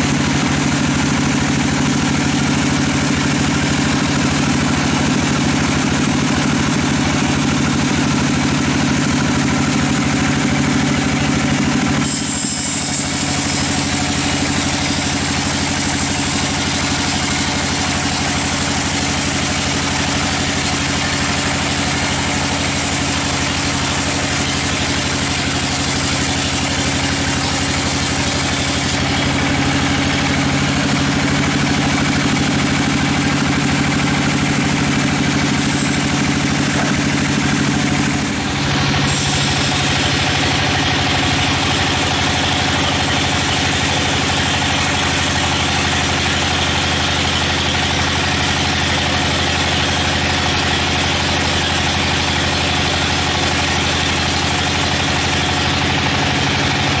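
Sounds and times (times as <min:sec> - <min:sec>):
band saw motor hum: 0:00.0 - 0:57.0
blade sawing log with hiss: 0:11.7 - 0:30.1, 0:34.1 - 0:38.3, 0:39.0 - 0:46.4.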